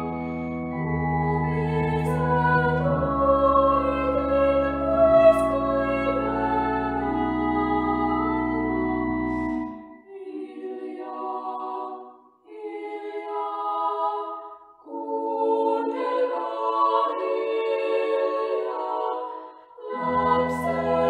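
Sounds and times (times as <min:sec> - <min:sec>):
women singing unaccompanied: 0:10.1 - 0:21.0.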